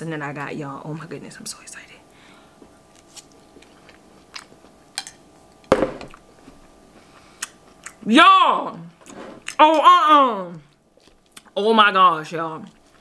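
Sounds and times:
person chewing: 2.6s - 8.0s, 10.5s - 11.6s, 12.6s - 13.0s
thump: 5.7s - 6.1s.

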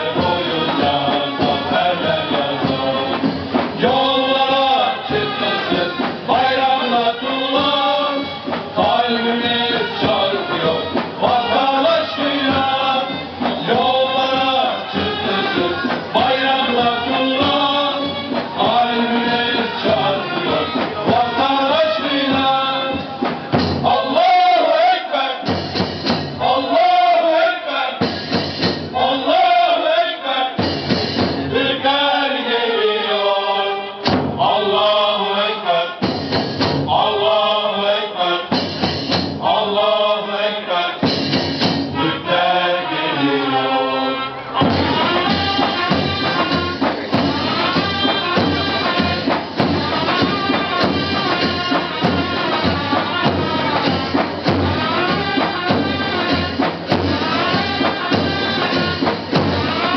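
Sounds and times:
drums: 0.0s - 33.2s, 33.9s - 59.9s
men's chorus singing: 0.0s - 59.9s
shrill horns: 4.1s - 23.0s, 41.9s - 59.9s.

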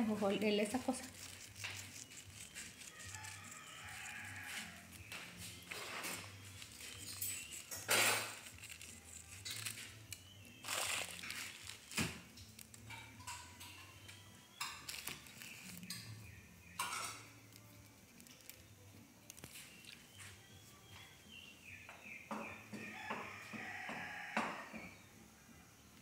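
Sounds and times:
rustling: 0.7s - 13.0s.

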